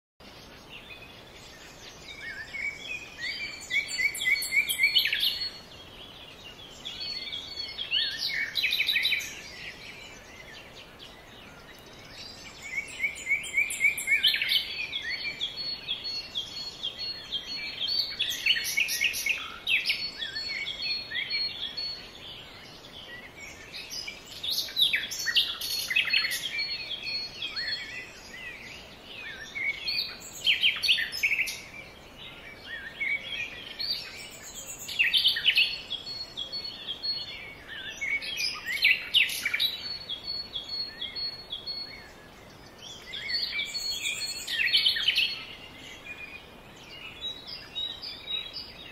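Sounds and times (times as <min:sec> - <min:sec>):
faint steady hiss: 0:00.2 - 0:48.9
songbirds chirping and trilling: 0:00.2 - 0:48.9.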